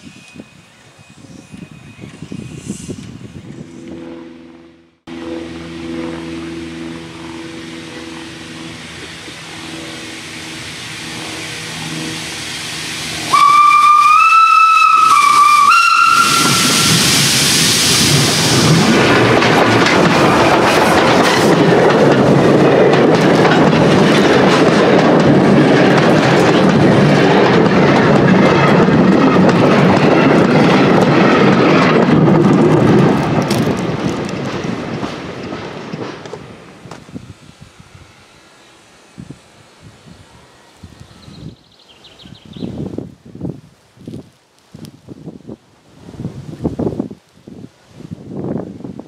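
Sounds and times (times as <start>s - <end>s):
steam hiss: 7.9s - 19.4s
steam whistle: 11.0s - 17.4s
train wheel clatter: 12.8s - 37.2s.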